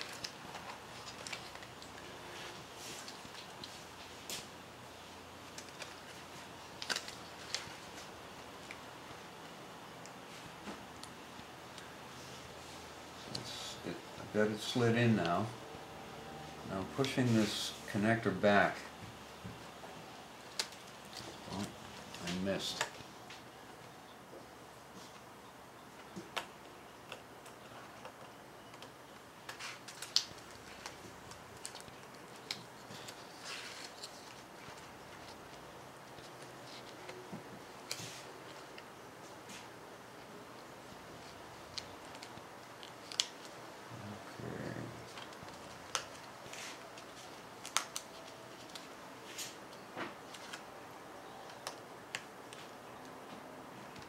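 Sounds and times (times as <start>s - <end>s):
soft rustle of handling: 0.0s - 4.5s, 16.5s - 24.0s, 29.5s - 54.0s.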